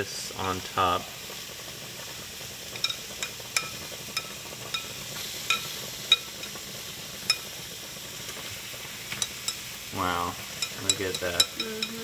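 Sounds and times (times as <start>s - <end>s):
steady sizzle on stove: 0.0s - 12.0s
spoon clinking against dish: 9.2s - 9.6s, 10.6s - 12.0s.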